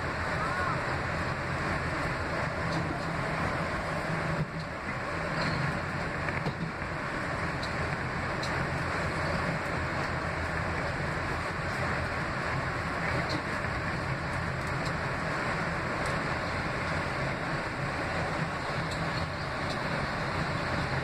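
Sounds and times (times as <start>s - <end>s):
subway car running: 0.0s - 21.0s.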